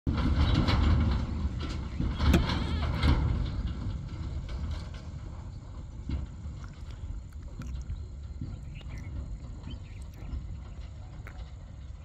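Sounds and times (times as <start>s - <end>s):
sharp knocks and rattles: 0.1s - 12.0s.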